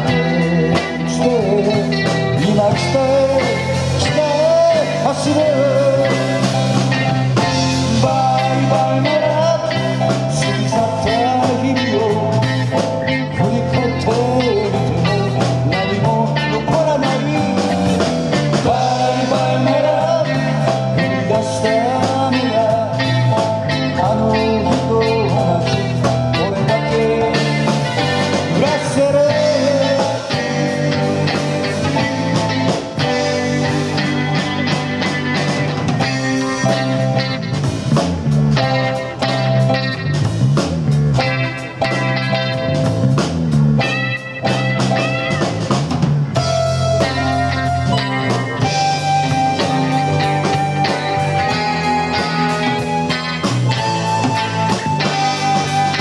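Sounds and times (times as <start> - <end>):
electric guitar lead bending: 0.0 - 56.0
live rock band playing: 0.0 - 56.0.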